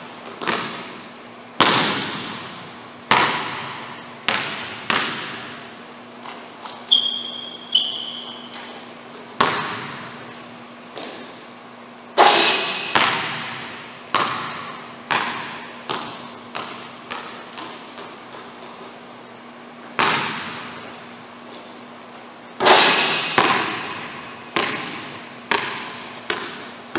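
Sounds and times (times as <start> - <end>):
basketball bouncing on wooden floor: 0.2 - 1.0, 1.6 - 10.2, 10.9 - 11.4, 12.6 - 18.9, 20.0 - 20.8, 22.6 - 26.8
sneaker squeaks: 6.3 - 11.4.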